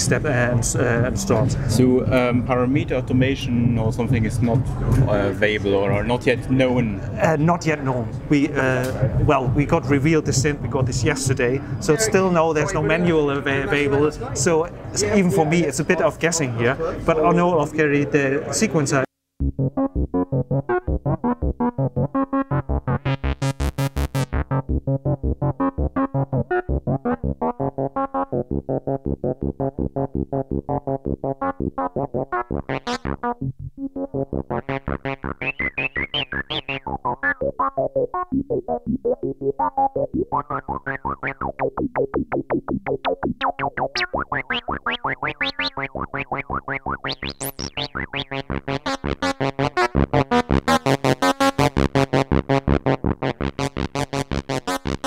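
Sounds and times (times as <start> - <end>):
synthesizer sequencer pattern: 0.0 - 6.5, 7.1 - 16.2, 19.4 - 55.0.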